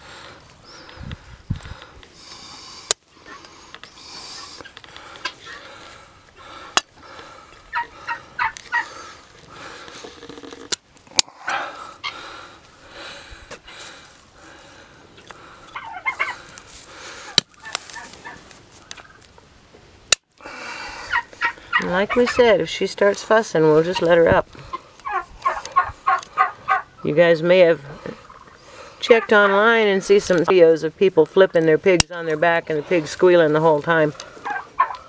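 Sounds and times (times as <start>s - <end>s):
nippers cracking through claws: 1.6s - 6.1s, 16.1s - 19.4s
high calls: 2.2s - 14.2s, 15.1s - 19.2s, 20.4s - 35.0s.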